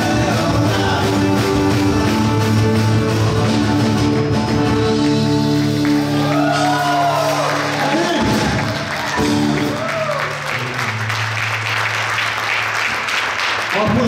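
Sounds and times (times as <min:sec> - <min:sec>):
person singing: 0:00.0 - 0:05.5
rock band playing chords: 0:00.0 - 0:11.6.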